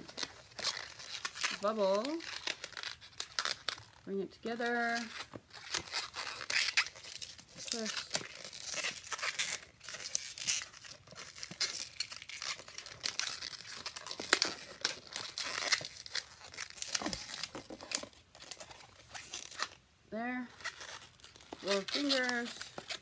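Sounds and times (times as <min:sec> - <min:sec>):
balloon squeak: 0:04.8 - 0:19.8, 0:20.5 - 0:23.0
balloon rubber rubbing: 0:04.9 - 0:19.8.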